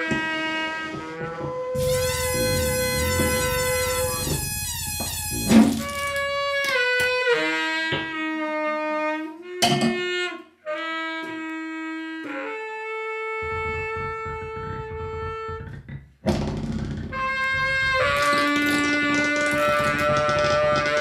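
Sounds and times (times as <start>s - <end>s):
baritone saxophone: 0.0s - 21.0s
turntable noise: 1.8s - 6.2s, 13.4s - 21.0s
loud noisy burst: 1.8s - 6.3s
low rumbling noise: 1.8s - 6.3s, 13.3s - 18.9s.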